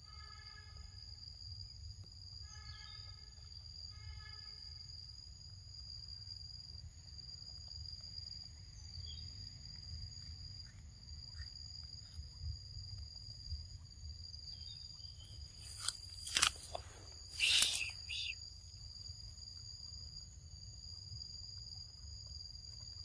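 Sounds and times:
insects calling: 0.0s - 23.0s
loud sharp clicks: 15.7s - 16.8s, 17.4s - 18.1s.

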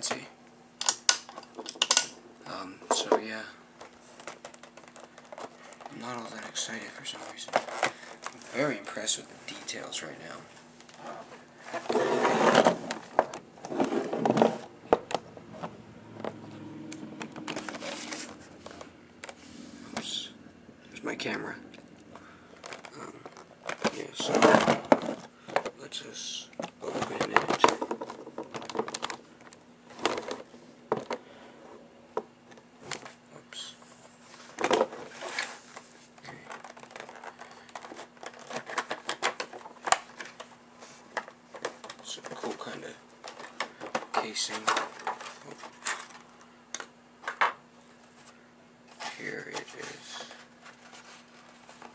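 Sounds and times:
packaging crinkling and rustling: 3.8s - 9.0s, 22.1s - 25.8s, 26.6s - 31.2s, 34.2s - 46.4s, 48.9s - 51.9s.

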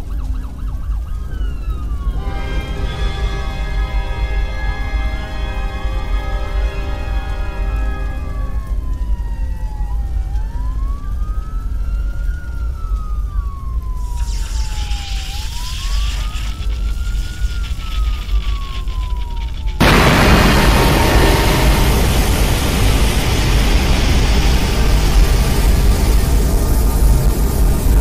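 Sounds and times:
wailing siren: 0.0s - 28.0s
steady low rumble: 1.6s - 28.0s
hiss: 13.9s - 28.0s.

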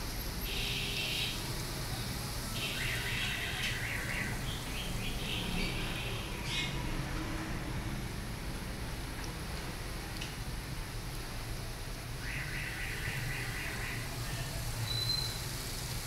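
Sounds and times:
birds chirping: 2.6s - 6.8s.

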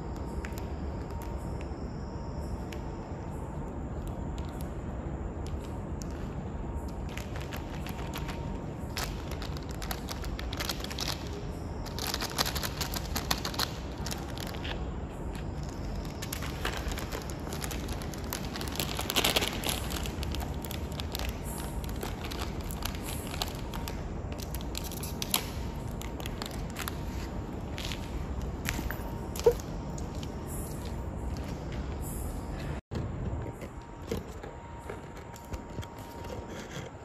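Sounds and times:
low background rumble: 0.0s - 37.0s
plastic packet crinkling: 7.1s - 14.7s, 15.6s - 27.1s.

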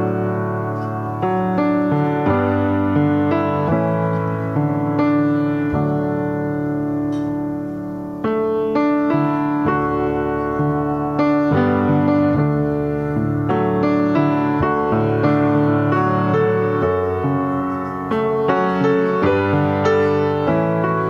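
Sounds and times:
slow piano chords: 0.0s - 21.0s.

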